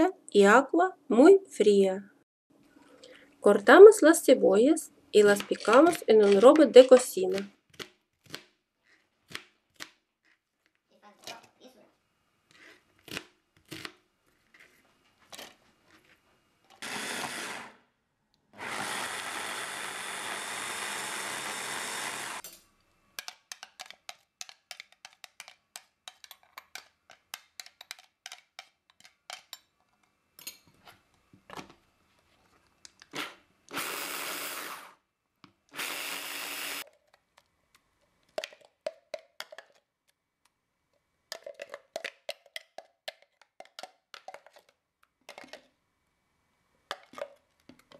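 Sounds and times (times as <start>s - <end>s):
hand blender chopping: 16.8s - 17.8s, 18.6s - 22.4s.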